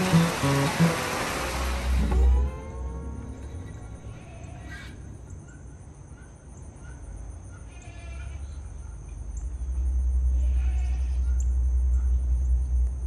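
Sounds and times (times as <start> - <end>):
steady low rumble: 11.4 - 13.0.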